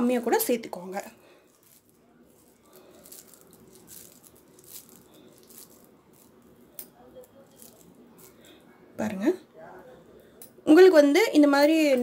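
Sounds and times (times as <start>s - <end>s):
crumbly mixture crackling by hand: 0.3s - 8.9s.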